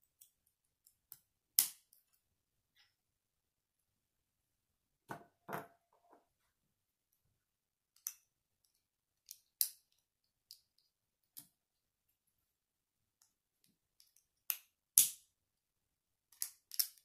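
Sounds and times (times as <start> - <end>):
plastic bricks snapping together: 16.3 - 17.0.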